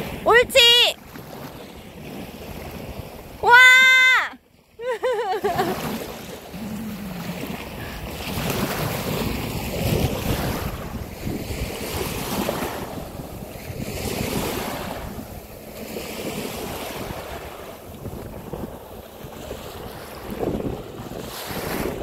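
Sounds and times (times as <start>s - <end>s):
small waves washing on beach: 0.0s - 22.0s
wind buffeting microphone: 5.4s - 22.0s.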